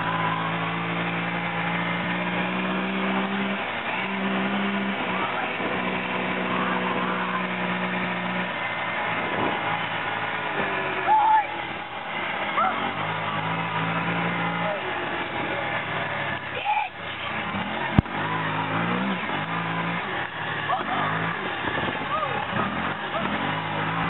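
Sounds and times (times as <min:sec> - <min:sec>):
off-road vehicle engine running hard: 0:00.0 - 0:24.0.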